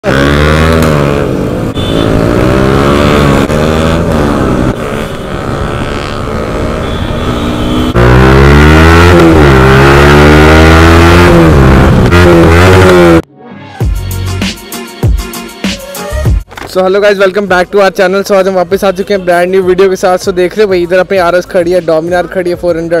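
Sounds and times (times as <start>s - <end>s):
motorcycle engine revving: 0.0s - 13.2s.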